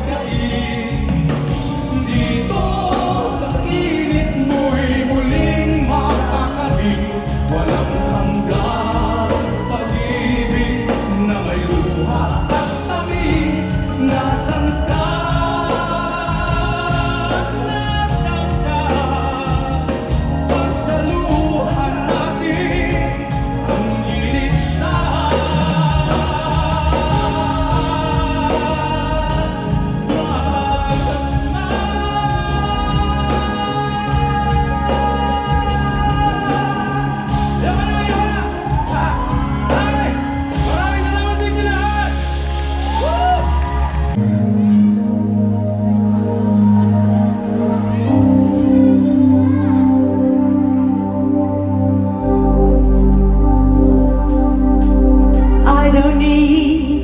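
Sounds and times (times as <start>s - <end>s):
people singing: 0.0s - 44.2s
guitar: 0.0s - 57.0s
heavy steady bass: 0.0s - 57.0s.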